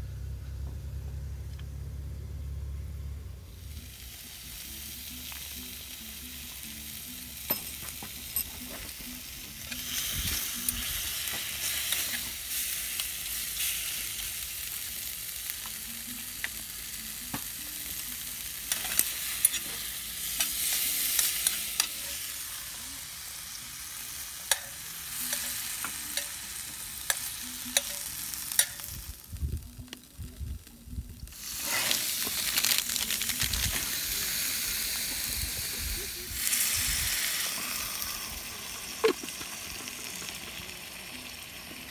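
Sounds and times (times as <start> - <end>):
meat sizzling in a skillet: 3.6 - 29.4, 31.2 - 41.9
metal chopsticks clicking on pan: 24.5 - 26.4, 27.0 - 28.9.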